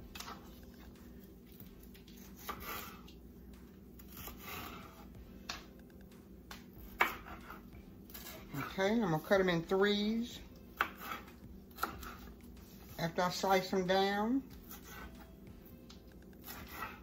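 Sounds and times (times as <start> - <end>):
knife slicing pepper: 2.1 - 3.1, 4.0 - 5.0, 6.8 - 8.8, 10.8 - 12.3, 14.6 - 15.2, 16.4 - 17.0.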